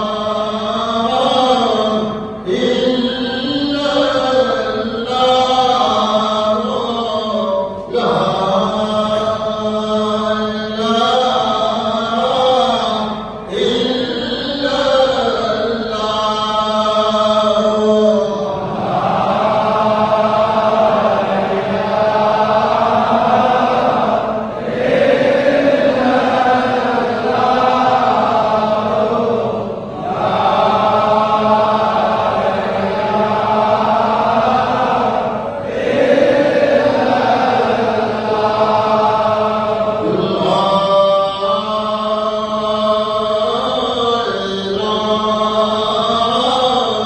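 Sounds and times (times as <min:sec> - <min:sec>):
voices chanting: 0:16.8 - 0:43.6.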